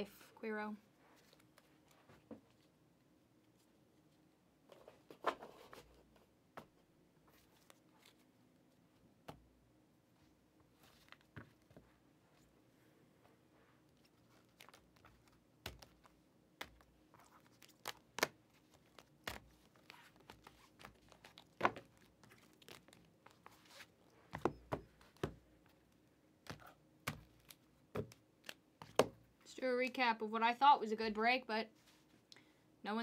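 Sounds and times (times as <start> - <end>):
cards clicking and tapping: 14.5 - 23.0, 26.4 - 29.2
wrappers crinkling and tearing: 16.8 - 23.8.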